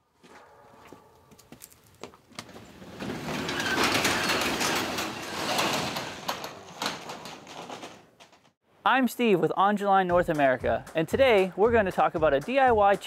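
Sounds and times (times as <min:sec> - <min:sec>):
garage door clicks: 0:02.4 - 0:08.6
garage door rattling up tracks: 0:02.4 - 0:08.6.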